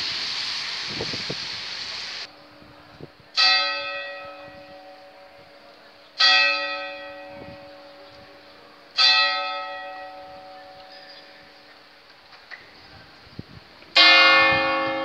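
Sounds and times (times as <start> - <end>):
church bell striking: 3.4 - 5.4, 6.2 - 8.3, 9.0 - 11.5, 14.0 - 15.0.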